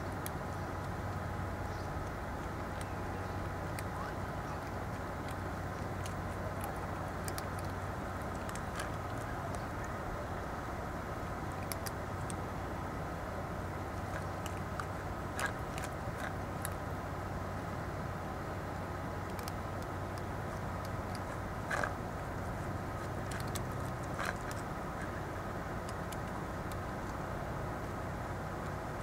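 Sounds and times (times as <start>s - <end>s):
steady background hum: 0.0s - 29.0s
cats crunching dry kibble: 3.6s - 9.8s, 11.3s - 12.8s, 13.6s - 16.9s, 19.2s - 27.3s.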